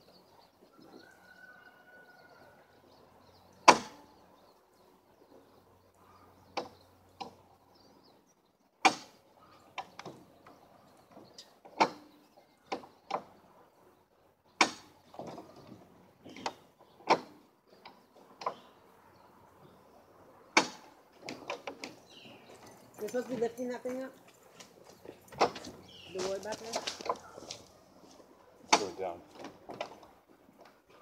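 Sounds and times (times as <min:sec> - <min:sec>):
sharp knocks and clanks: 0:09.8 - 0:13.3, 0:20.6 - 0:22.0, 0:28.7 - 0:30.8.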